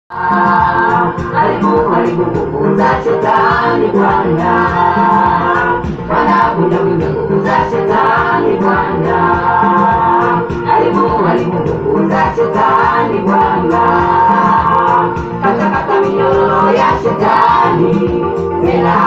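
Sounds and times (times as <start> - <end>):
group singing gospel song: 0.1 - 19.0
steady beat: 0.1 - 19.0.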